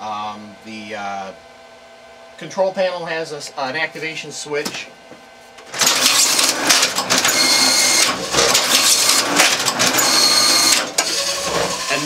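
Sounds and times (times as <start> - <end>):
strapping machine whirring and clattering: 5.6 - 12.0.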